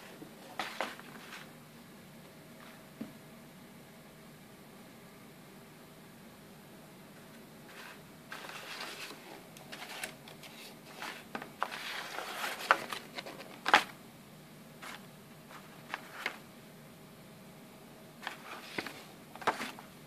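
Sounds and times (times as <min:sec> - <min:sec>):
paper crinkling and rustling: 0:00.6 - 0:01.5, 0:07.7 - 0:14.0, 0:14.8 - 0:16.4, 0:18.2 - 0:19.9.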